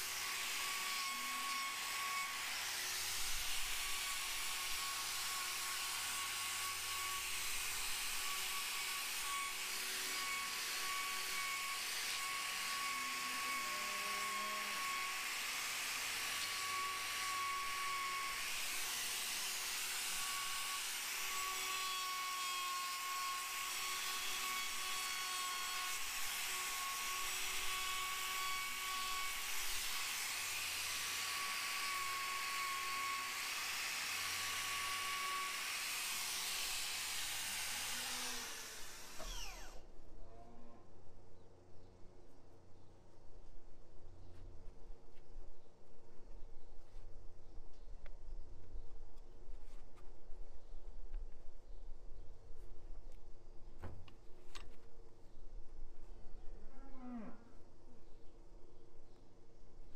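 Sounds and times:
angle grinder whining: 0:00.0 - 0:39.9.

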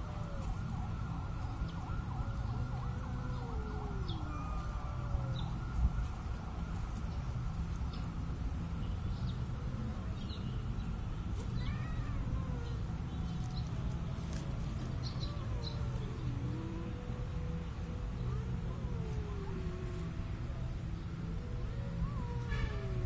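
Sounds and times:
cat yowling: 0:03.4 - 0:05.1, 0:11.6 - 0:12.8, 0:22.0 - 0:23.0.

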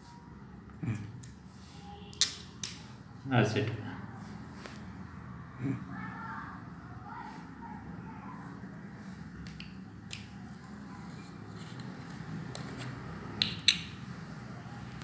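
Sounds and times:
metal bottle cap clicking: 0:13.4 - 0:14.0.

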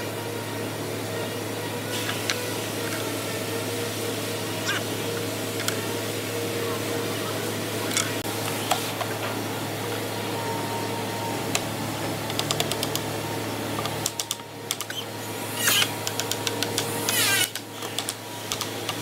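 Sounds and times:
workshop hum: 0:00.0 - 0:19.0
wood scraping squeaks: 0:14.8 - 0:15.9, 0:17.1 - 0:18.0.

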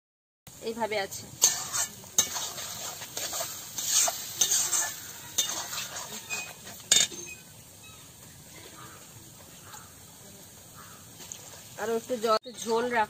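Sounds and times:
curry sizzling: 0:00.5 - 0:13.0
metal spatula scraping pan: 0:01.4 - 0:07.5.

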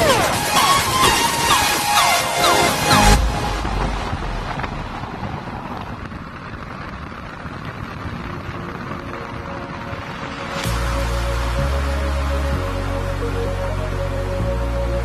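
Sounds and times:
background music: 0:00.0 - 0:04.9, 0:08.2 - 0:15.0
wind noise on microphone: 0:00.0 - 0:15.0.

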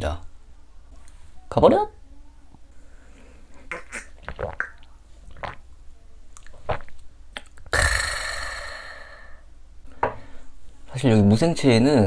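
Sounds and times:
swallowing and mouth sounds: 0:03.6 - 0:05.7, 0:06.4 - 0:08.8
man exhaling raspy breath: 0:07.7 - 0:09.4.

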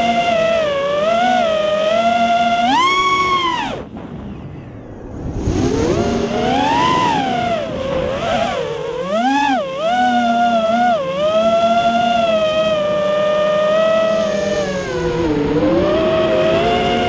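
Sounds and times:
drone motors whining: 0:00.0 - 0:17.0
rushing noise: 0:03.8 - 0:08.2.

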